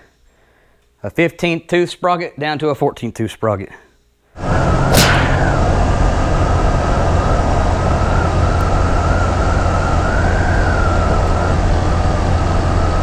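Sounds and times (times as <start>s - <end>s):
high whine: 4.4s - 13.0s
wind rumble on microphone: 4.4s - 13.0s.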